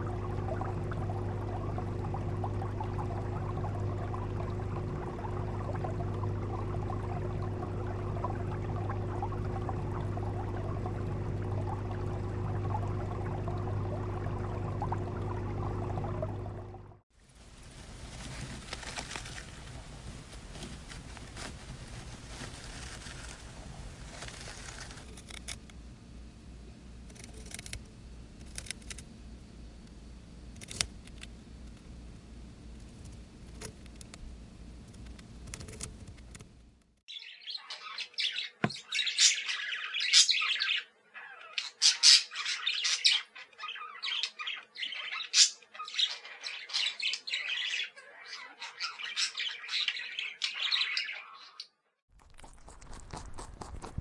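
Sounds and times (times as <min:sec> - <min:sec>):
hamster rustling in wood shavings: 0:17.2 - 0:25.2
budgerigars chattering and warbling: 0:37.1 - 0:51.6
rabbit chewing grass: 0:52.2 - 0:54.0.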